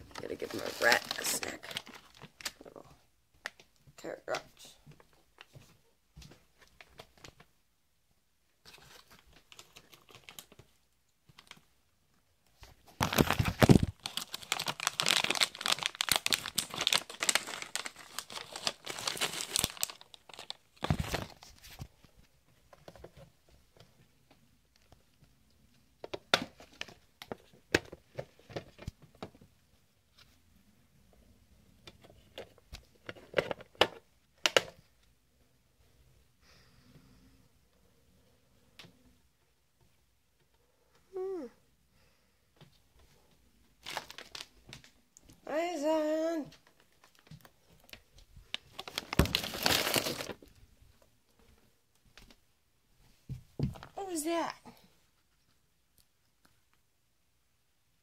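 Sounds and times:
plastic snack bag crinkling: 0:00.0 - 0:02.8, 0:08.7 - 0:11.7, 0:12.8 - 0:21.8, 0:43.8 - 0:45.3, 0:46.6 - 0:50.6.

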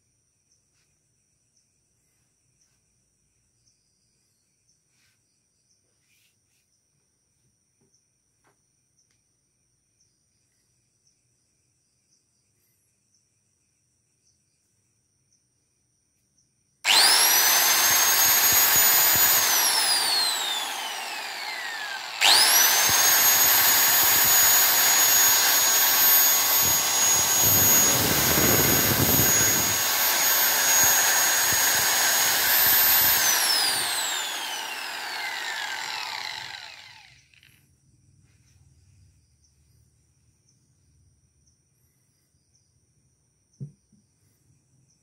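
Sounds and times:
angle grinder whining: 0:16.9 - 0:37.5.

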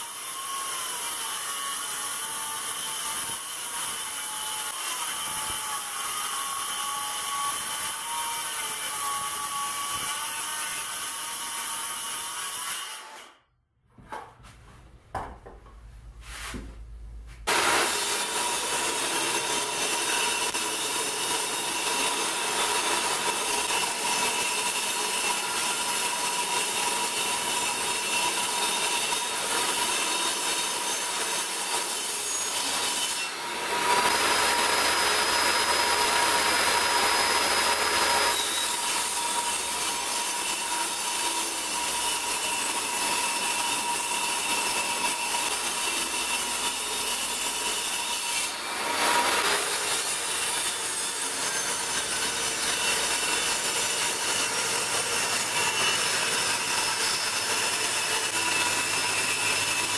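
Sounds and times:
saw blade cutting wood: 0:00.0 - 0:13.4, 0:17.4 - 0:59.9
table saw motor whining: 0:32.2 - 0:59.9.

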